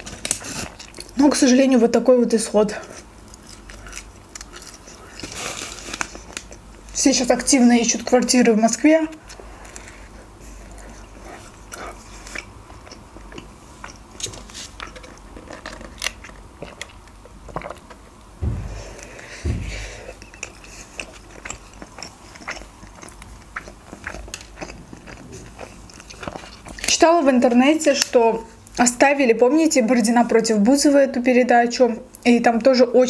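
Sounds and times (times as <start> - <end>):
biting and chewing crunches: 0.0 - 1.2, 2.8 - 6.9, 9.2 - 18.3, 20.2 - 27.0
low thumps: 18.4 - 20.2.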